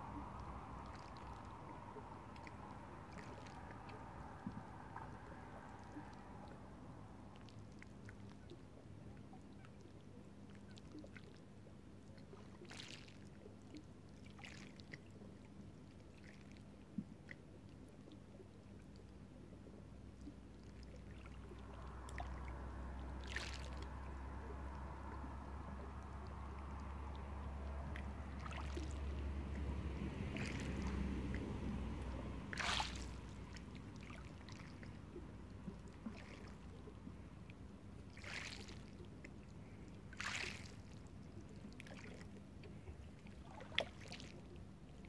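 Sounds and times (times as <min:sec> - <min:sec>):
waves lapping over stones: 0:00.0 - 0:06.6, 0:20.7 - 0:37.0, 0:38.0 - 0:42.4
passing car rumble: 0:00.0 - 0:07.8, 0:21.2 - 0:38.1.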